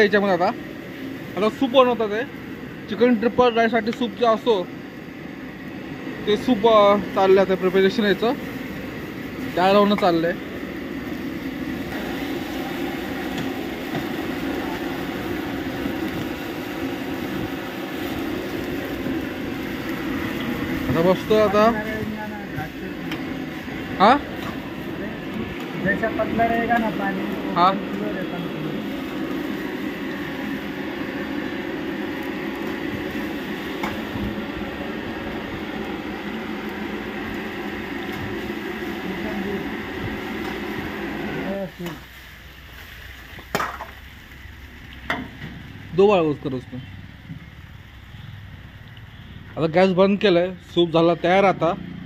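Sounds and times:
gas burner roaring: 0.0s - 52.0s.

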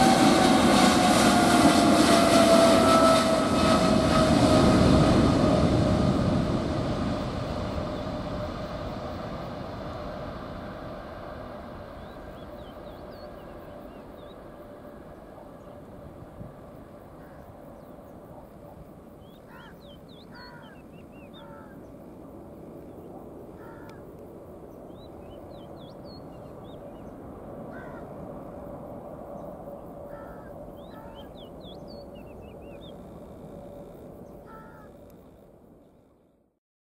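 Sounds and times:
distant jet roar: 0.0s - 35.2s
crows cawing: 17.2s - 17.5s, 19.5s - 20.8s, 21.4s - 21.8s, 23.6s - 24.1s, 27.7s - 28.1s, 30.1s - 31.3s, 34.5s - 35.0s.

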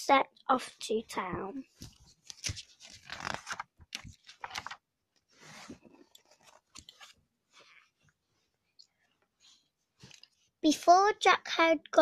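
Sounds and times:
book pages rustling: 1.6s - 10.5s
scrapes and clicks of handling: 5.4s - 8.2s, 10.0s - 10.4s.

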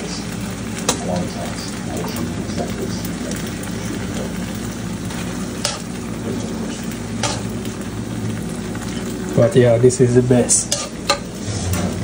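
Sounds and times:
food sizzling in a pan: 0.0s - 12.0s
spoon stirring and scraping pan: 5.1s - 7.8s, 10.1s - 12.0s.

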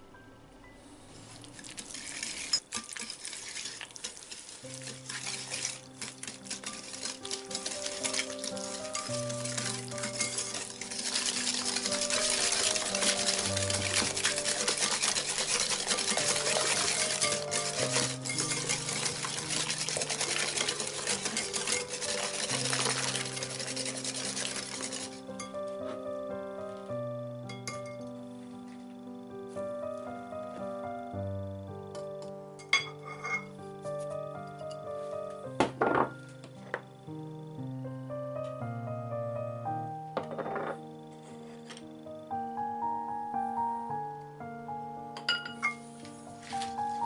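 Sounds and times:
soft background music: 0.0s - 2.6s, 3.6s - 47.0s
wire whisk beating in a bowl: 1.8s - 25.5s.

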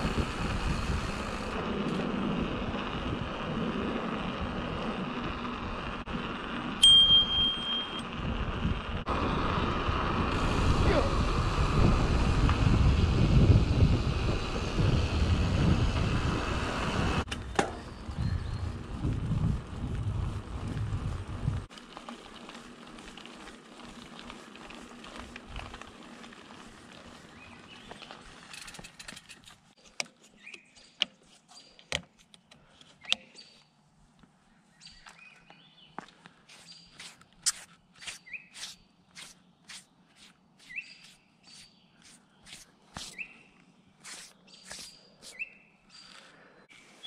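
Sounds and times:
wind rushing over microphone: 0.0s - 6.3s, 8.0s - 21.7s
bike tyres rolling on asphalt: 0.0s - 47.0s
short high squeaks: 36.5s - 43.3s, 44.0s - 45.5s.

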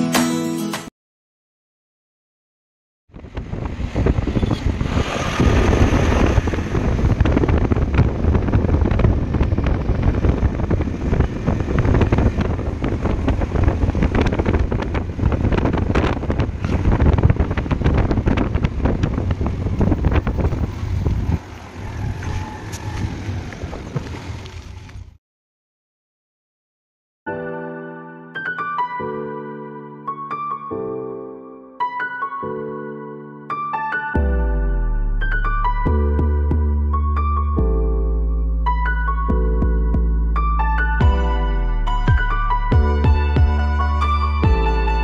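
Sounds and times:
wind buffeting microphone: 3.1s - 25.2s.

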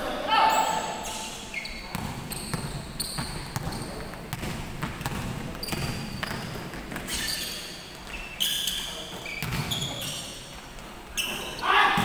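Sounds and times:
sneaker squeaks: 0.4s - 4.4s, 5.0s - 12.0s
basketball bouncing: 1.9s - 7.0s, 9.4s - 9.8s.

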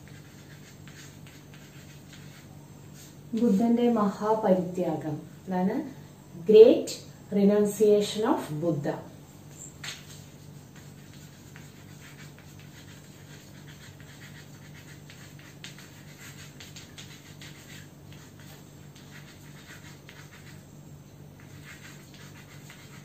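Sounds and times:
chalk scratching on blackboard: 0.0s - 3.6s, 9.5s - 20.8s, 21.4s - 23.0s
steady low hum: 0.0s - 23.0s.

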